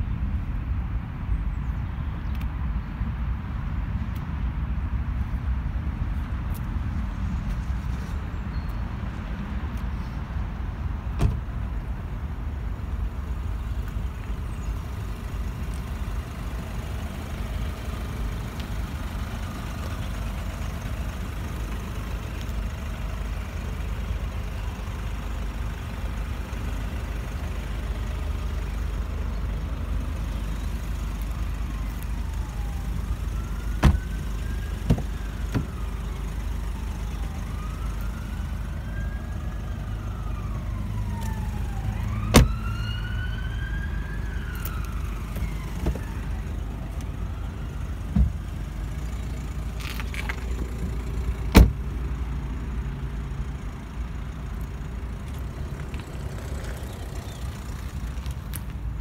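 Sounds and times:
low outdoor rumble: 0.0 - 59.0
siren wailing: 31.6 - 48.0.

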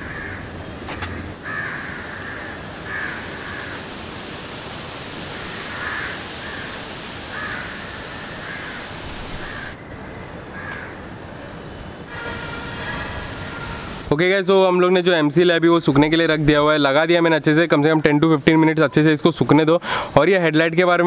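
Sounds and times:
crows cawing: 0.0 - 3.9, 5.2 - 11.1, 12.1 - 14.0
background hiss: 0.0 - 21.0.

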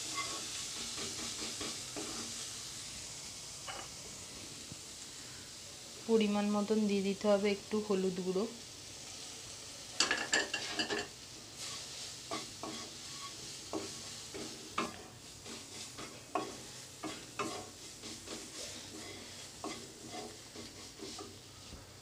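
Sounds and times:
low sizzle: 0.0 - 22.0
utensil scraping and clinking pan: 10.0 - 15.0.

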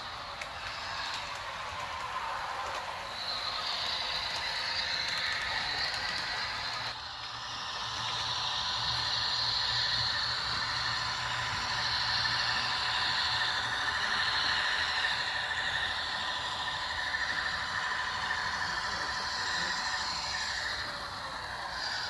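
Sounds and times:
high wavering hiss: 0.0 - 22.0
model locomotive whirring hum: 0.0 - 22.0.

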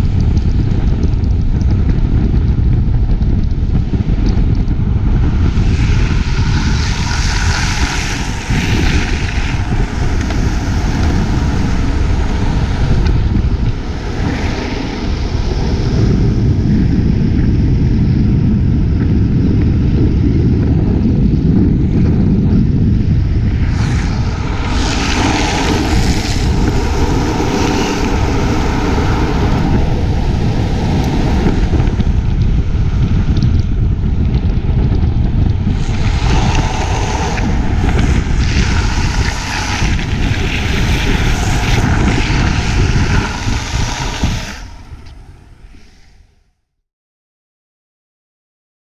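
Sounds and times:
wheels rumbling on asphalt: 0.0 - 46.3
wind buffeting microphone: 0.0 - 46.6.

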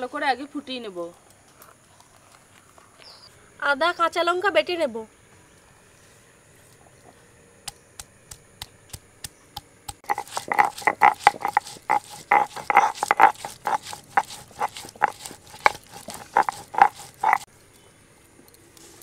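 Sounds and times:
stone-on-stone grinding: 10.0 - 17.5.

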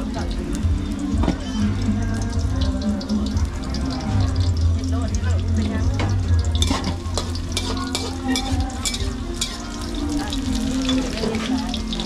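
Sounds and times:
food frying in oil: 0.0 - 12.0
metal spatula scraping a wok: 6.6 - 11.8.

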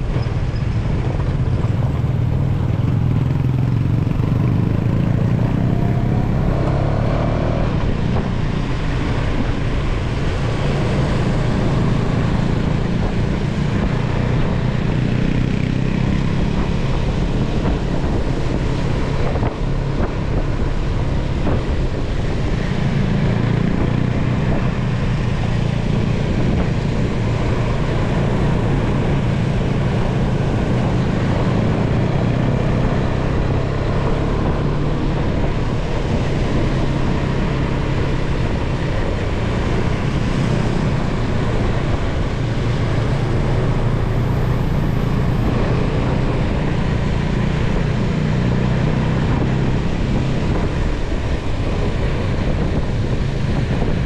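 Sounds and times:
motorcycle engine running: 0.0 - 54.0
wind buffeting microphone: 0.0 - 54.0.

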